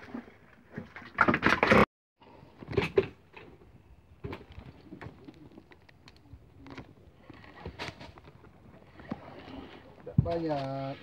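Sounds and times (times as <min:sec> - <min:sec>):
fishing gear knocks and clicks: 0:04.2 - 0:08.6.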